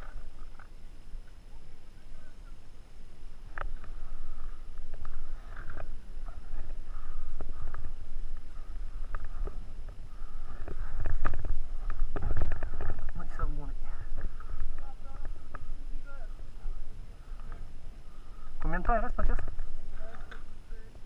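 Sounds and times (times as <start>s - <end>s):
wind rumble on microphone: 3.2s - 21.0s
microphone handling noise: 3.5s - 15.9s.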